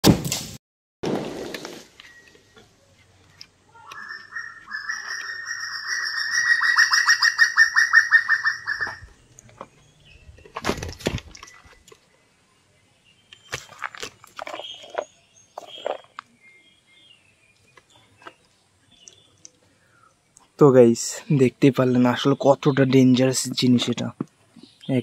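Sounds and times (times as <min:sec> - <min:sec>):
bird trilling: 0:03.8 - 0:09.1.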